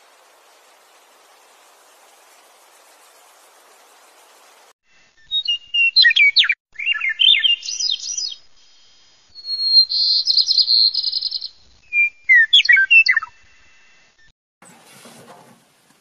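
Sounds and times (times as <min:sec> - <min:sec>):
songbird singing: 0:05.2 - 0:13.5.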